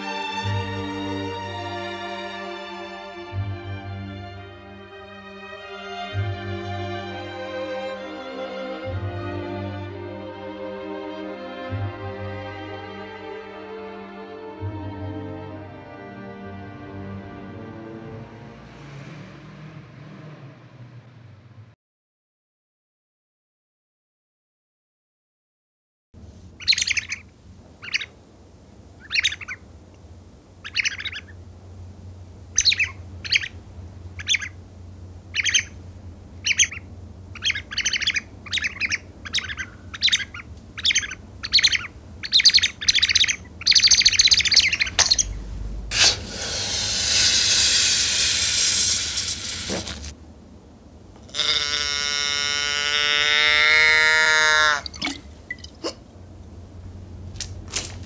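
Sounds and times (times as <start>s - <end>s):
high bird-like chirps: 26.6s - 27.2s, 27.8s - 28.1s, 29.0s - 29.6s, 30.6s - 31.4s, 32.6s - 33.6s, 34.2s - 34.6s, 35.3s - 35.8s, 36.4s - 49.7s
loud hissing rush: 43.4s - 51.1s
long downward-sliding tone: 44.1s - 49.5s.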